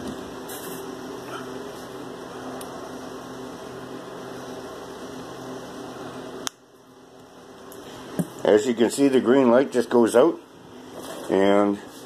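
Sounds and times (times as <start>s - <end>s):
electrical hum with buzzing drone: 0.0s - 12.0s.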